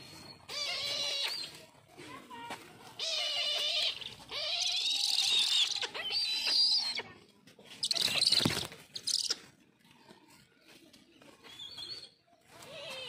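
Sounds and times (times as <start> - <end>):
kites squealing calls: 0.0 - 1.6
flapping wings: 7.8 - 9.3.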